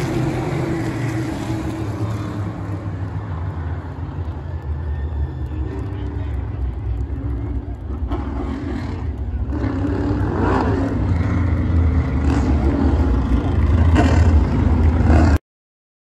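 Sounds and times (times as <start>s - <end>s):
race car engines: 0.0s - 15.4s.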